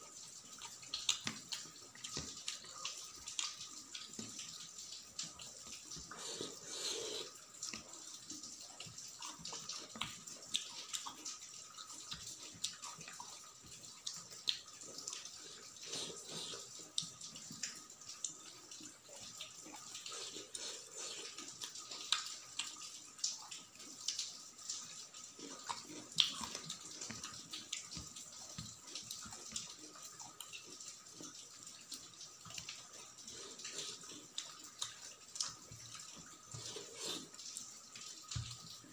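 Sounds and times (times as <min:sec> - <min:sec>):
wet chewing: 0:00.5 - 0:18.4, 0:25.4 - 0:31.3, 0:32.4 - 0:38.9.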